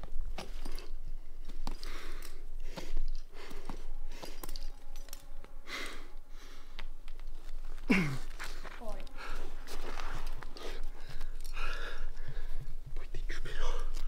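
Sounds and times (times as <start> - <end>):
climber breathing hard: 1.5 - 7.0, 7.7 - 12.8.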